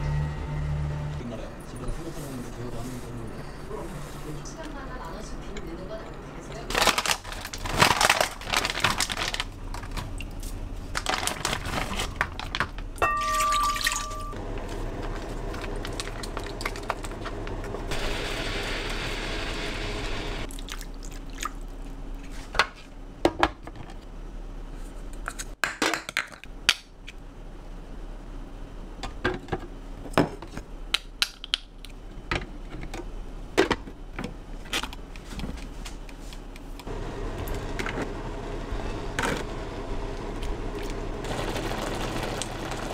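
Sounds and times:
plastic package rustling: 0:06.7 - 0:09.9, 0:10.9 - 0:12.9
liquid pouring: 0:41.2 - 0:42.9.

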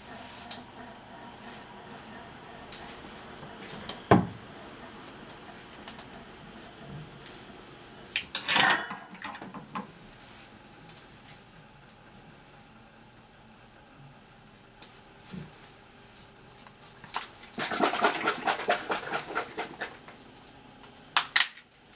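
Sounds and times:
utensils and cookware clattering: 0:08.2 - 0:09.6.

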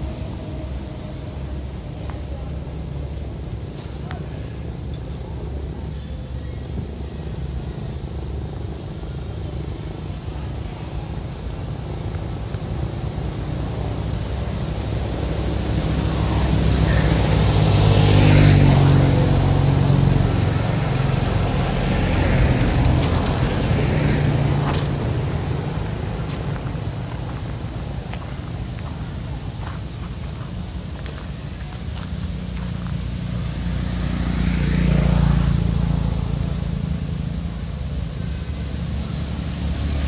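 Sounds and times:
motor vehicle engine passing: 0:13.0 - 0:40.0.

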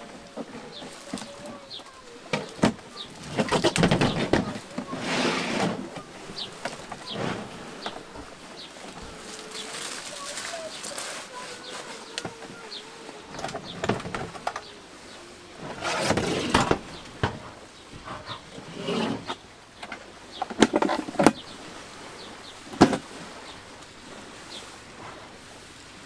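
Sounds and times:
plastic case knocks and scrapes: 0:02.3 - 0:08.0, 0:13.3 - 0:14.6, 0:15.6 - 0:19.4, 0:22.8 - 0:23.0.

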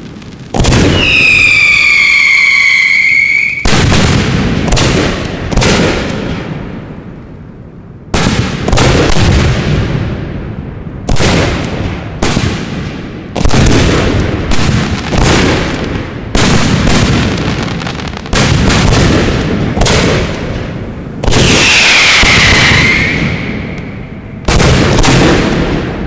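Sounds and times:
fireworks bangs: 0:00.0 - 0:07.2, 0:08.1 - 0:26.0
firework whistling: 0:00.6 - 0:04.0, 0:21.3 - 0:24.3.

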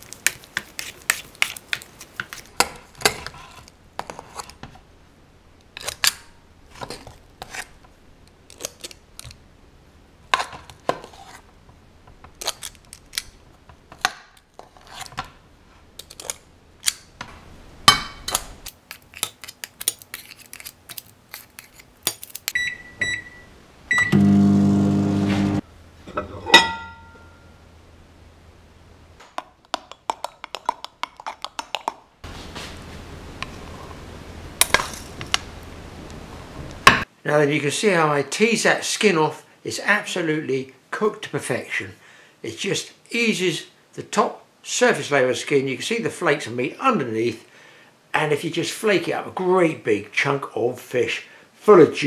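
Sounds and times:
keypad beeps: 0:22.6 - 0:24.3
short beep: 0:22.6 - 0:24.6
microwave oven humming: 0:23.1 - 0:25.6.

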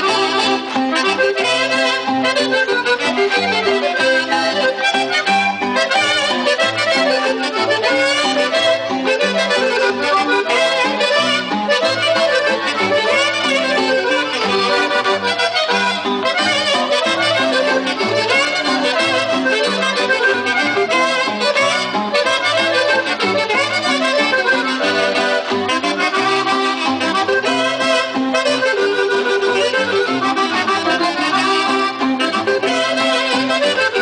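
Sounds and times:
accordion dance music: 0:00.0 - 0:34.0.

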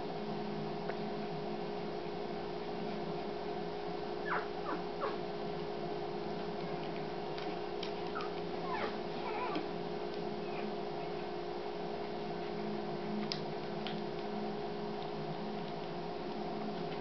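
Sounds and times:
steady low hum: 0:00.0 - 0:17.0
puppies squeaking: 0:04.2 - 0:05.2, 0:08.1 - 0:09.6.

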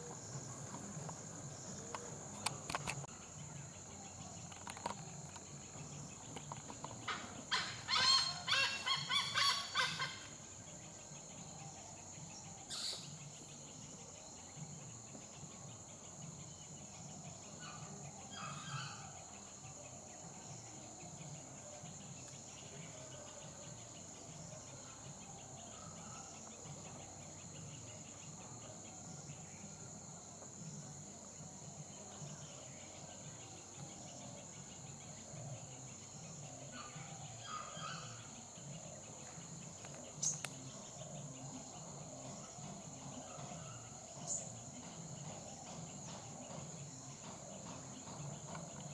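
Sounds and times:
high-pitched insect chorus: 0:00.0 - 0:48.9.

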